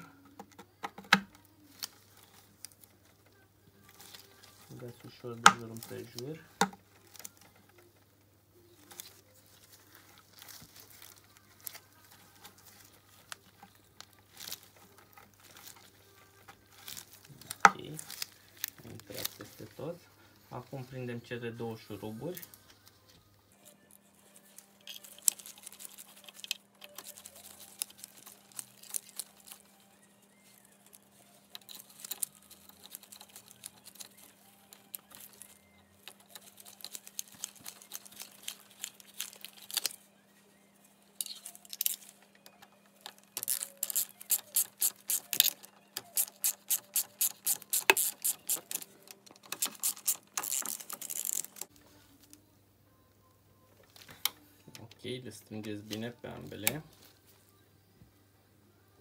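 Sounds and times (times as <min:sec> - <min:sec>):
ratchet wrench clicking: 0:43.5 - 0:48.8.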